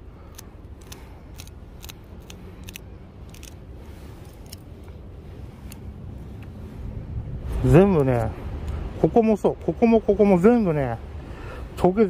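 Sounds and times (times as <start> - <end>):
scissors snipping: 0.3 - 3.6.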